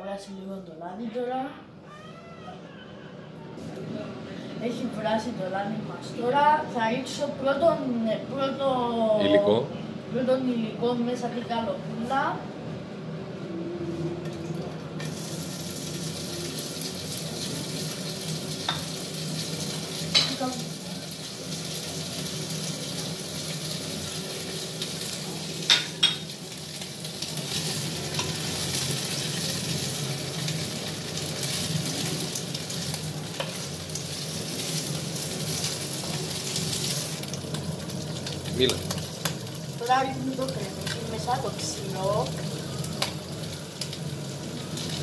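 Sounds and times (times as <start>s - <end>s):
meat sizzling in oil: 15.0s - 45.0s.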